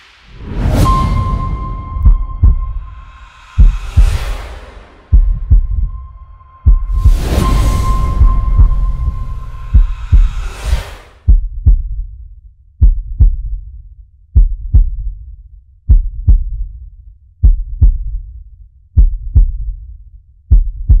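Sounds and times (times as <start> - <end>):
heartbeat thumps: 0.8 - 12.1, 12.8 - 13.6, 14.4 - 15.2, 15.9 - 16.7, 17.4 - 18.2, 19.0 - 19.8, 20.5 - 21.0.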